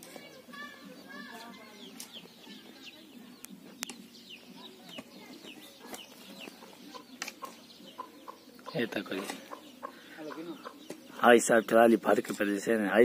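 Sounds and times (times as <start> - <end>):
chickens chirping: 0.0 - 13.0.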